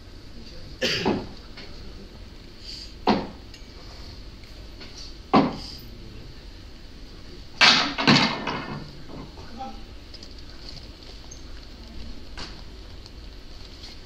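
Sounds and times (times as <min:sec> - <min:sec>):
sharp knocks: 0:03.0 - 0:03.4, 0:05.3 - 0:05.6.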